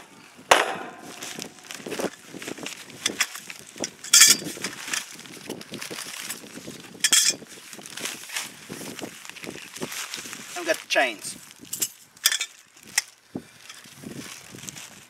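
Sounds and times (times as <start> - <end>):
nylon bag rustling: 1.0 - 15.0
metal parts clinking and rattling: 1.2 - 5.2, 5.8 - 7.5, 11.6 - 13.9.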